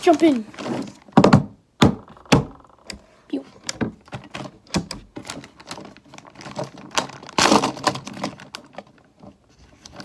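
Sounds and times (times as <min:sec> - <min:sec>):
plastic bag crinkling: 0:04.2 - 0:10.0.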